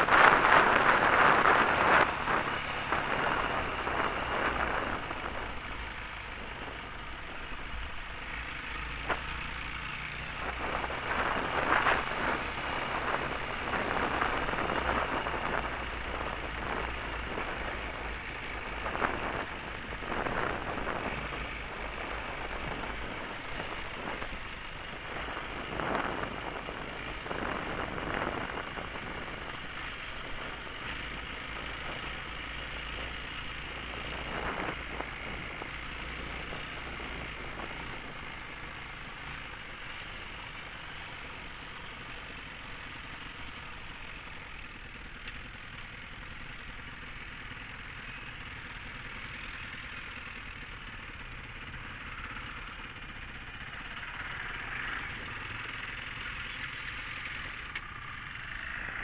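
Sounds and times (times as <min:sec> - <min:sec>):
wind buffeting microphone: 0:00.0 - 0:06.7, 0:10.3 - 0:32.4
motorcycle engine running: 0:00.0 - 0:59.0.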